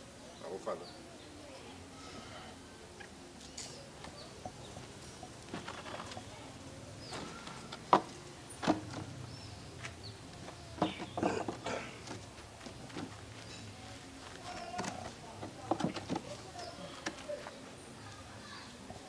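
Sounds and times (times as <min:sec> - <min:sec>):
faint birds chirping: 0:00.0 - 0:19.0
chair knocking and scraping on dirt: 0:05.5 - 0:06.3, 0:07.0 - 0:13.7, 0:14.4 - 0:17.2.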